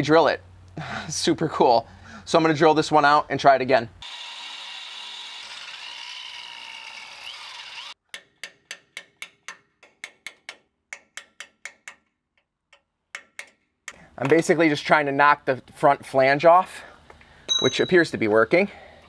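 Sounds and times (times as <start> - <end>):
power drill drilling metal: 4.0 - 8.0.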